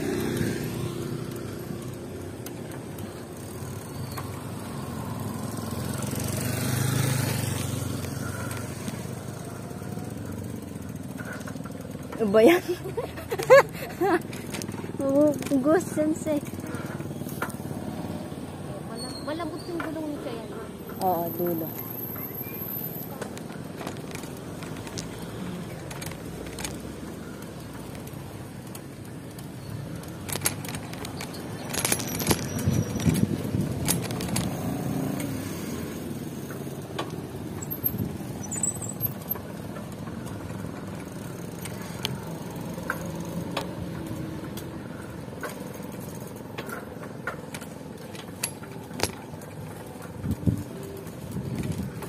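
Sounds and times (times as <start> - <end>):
vehicle passing close by: 0.0 - 2.0, 4.2 - 11.5
vehicle and road noise: 0.0 - 52.0
clicks and rattles: 23.1 - 35.5, 36.4 - 52.0.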